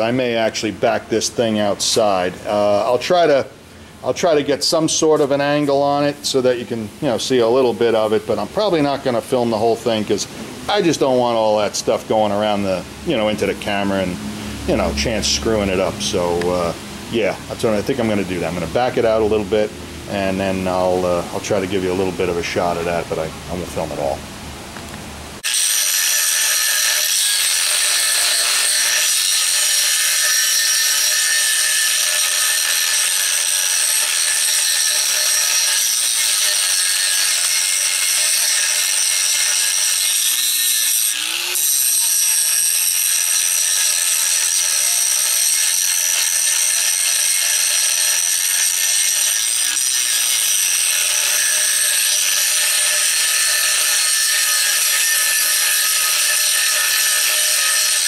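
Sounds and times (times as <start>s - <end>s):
angle grinder whining: 25.4s - 58.0s.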